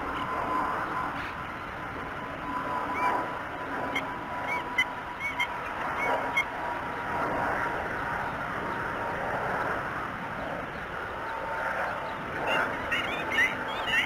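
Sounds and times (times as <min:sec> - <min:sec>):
high bird chirps: 0:12.1 - 0:14.0.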